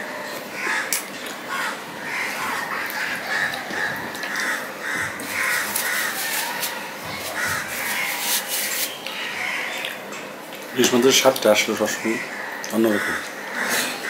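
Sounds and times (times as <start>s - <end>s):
bird cawing harshly: 0.6s - 9.8s, 11.8s - 14.0s
fingers squishing rice: 5.3s - 9.3s.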